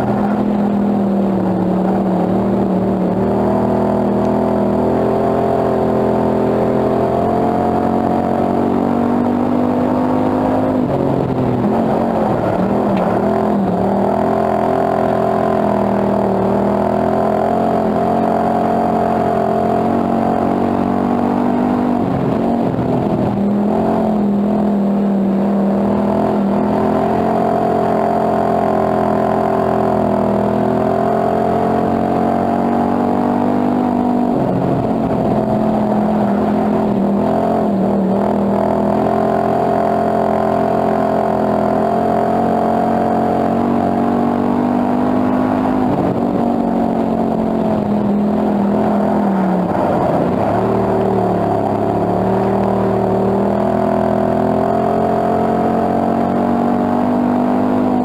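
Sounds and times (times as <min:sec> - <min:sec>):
race car engine running hard: 0:00.0 - 0:58.0.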